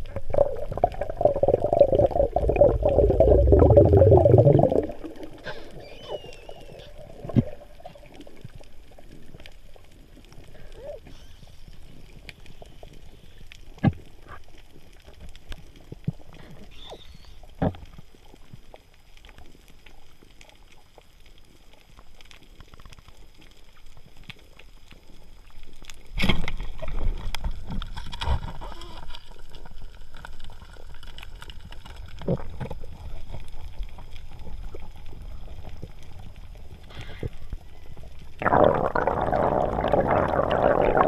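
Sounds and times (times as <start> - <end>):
water churning: 0.0 - 8.5, 38.4 - 41.0
underwater water hiss: 32.9 - 41.0.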